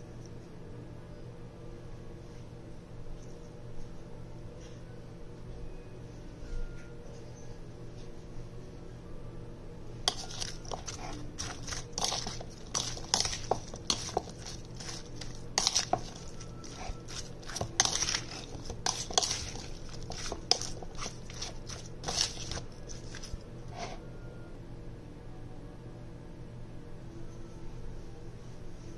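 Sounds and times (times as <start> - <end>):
wet food stirring: 10.1 - 23.9
utensil scraping plastic bowl: 10.1 - 24.0.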